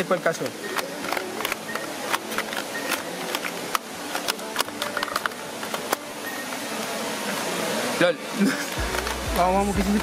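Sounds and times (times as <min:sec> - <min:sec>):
plastic puzzle cube clicking: 0:00.8 - 0:06.0.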